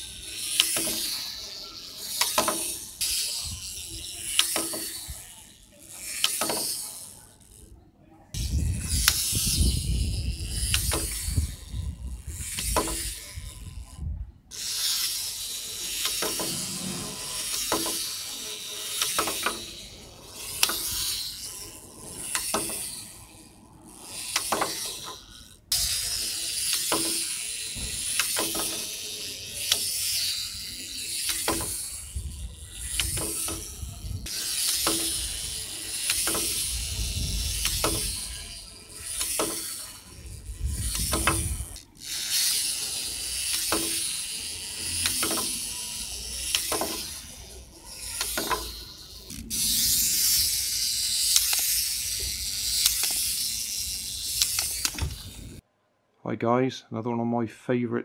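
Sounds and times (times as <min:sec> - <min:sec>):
plastic toy hopping clicks: 0:00.0 - 0:07.7, 0:08.3 - 0:55.6
spring mechanism whirring: 0:00.0 - 0:07.7, 0:08.3 - 0:55.6
wind-up toy ratchet clicks: 0:00.0 - 0:07.7, 0:08.3 - 0:55.6.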